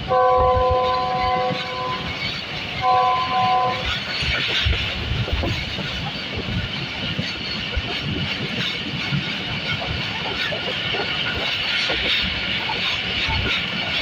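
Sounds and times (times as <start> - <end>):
train horn blast: 0.0 - 2.2, 2.8 - 3.9
train wheels rumbling on track: 0.0 - 14.0
wheels knocking: 0.5 - 14.0.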